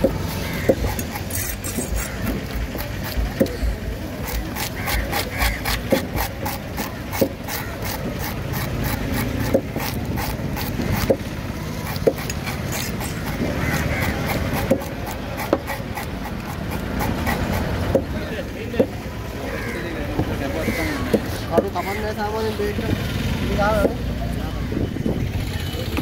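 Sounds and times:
fish scaler rasping: 0.0 - 18.1.

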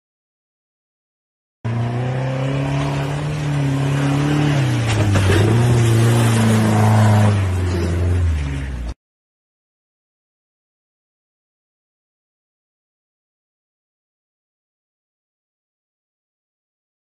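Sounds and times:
car engine revving hard: 1.7 - 8.6.

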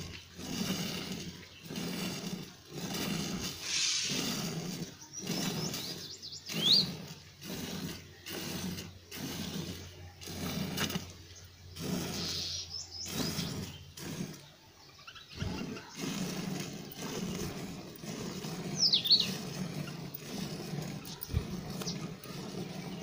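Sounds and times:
milk squirting into a pail: 0.0 - 23.0
bird chirping: 3.6 - 7.1, 11.2 - 16.1, 18.4 - 20.0.

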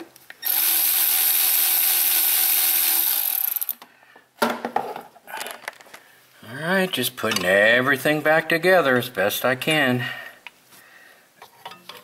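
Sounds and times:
cordless ratchet running: 0.4 - 3.8.

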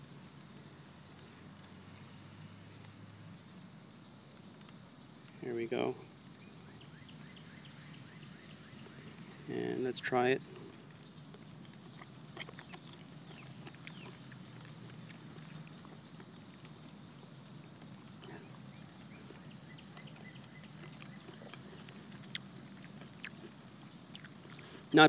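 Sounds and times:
wet mouth clicks chewing: 10.4 - 25.0.

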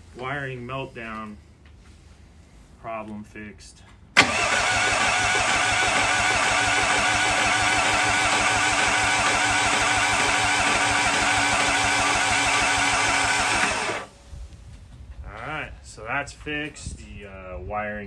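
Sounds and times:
starter motor cranking engine: 4.2 - 14.1.

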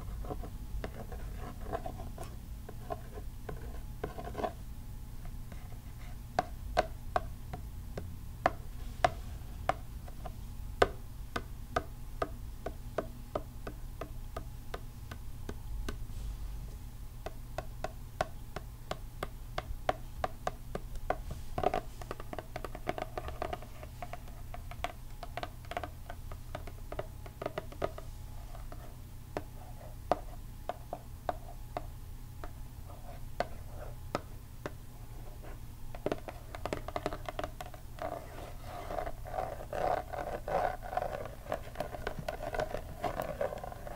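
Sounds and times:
steady low hum: 0.0 - 43.9
fingernails tapping on cardboard: 17.2 - 28.0, 35.9 - 43.9.

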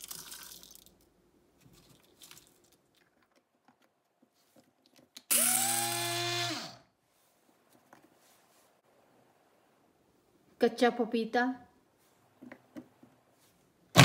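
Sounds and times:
electric spice grinder whine: 5.3 - 6.8.

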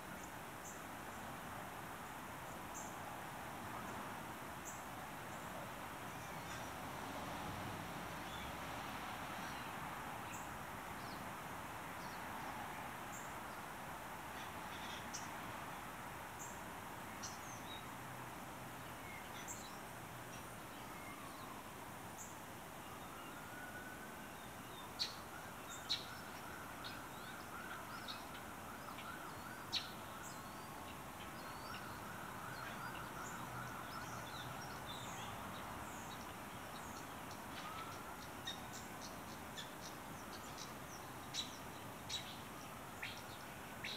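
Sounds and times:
distant siren: 31.8 - 34.6.

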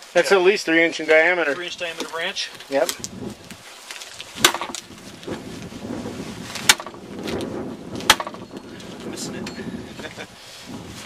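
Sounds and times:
axe chopping into branch: 4.4 - 4.9, 6.6 - 7.0, 8.0 - 8.4.

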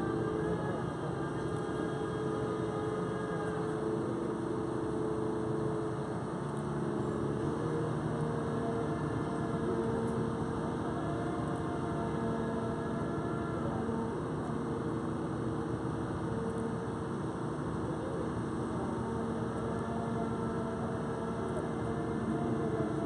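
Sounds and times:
crane engine running: 0.0 - 23.0.

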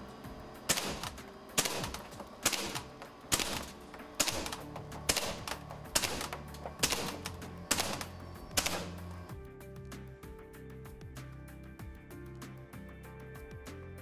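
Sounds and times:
low steady music: 0.0 - 14.0
bb gun shots: 0.7 - 9.2.

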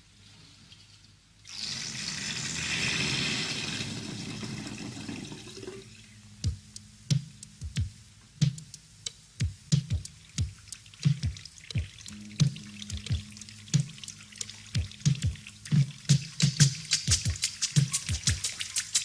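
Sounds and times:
music: 5.7 - 19.0.

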